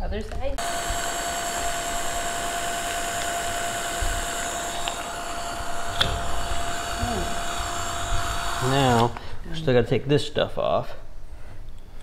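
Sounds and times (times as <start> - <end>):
hair dryer running: 0.6 - 9.3.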